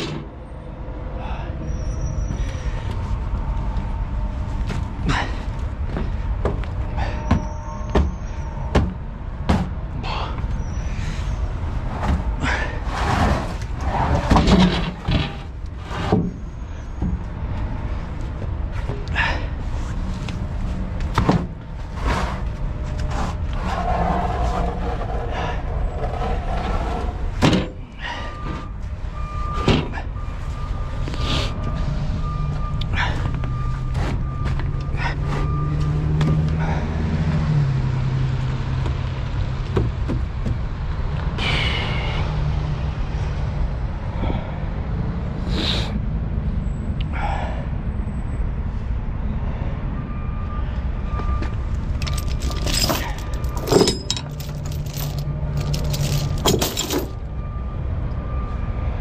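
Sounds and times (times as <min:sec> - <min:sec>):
truck engine droning: 0:00.0 - 0:59.0
knocks and rattles: 0:05.9 - 0:09.9, 0:13.2 - 0:16.4, 0:39.6 - 0:40.7, 0:52.0 - 0:57.2.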